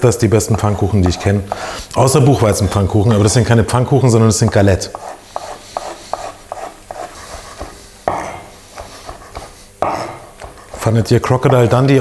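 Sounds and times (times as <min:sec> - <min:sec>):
knife tapping on cutting board: 0:07.6 - 0:10.6.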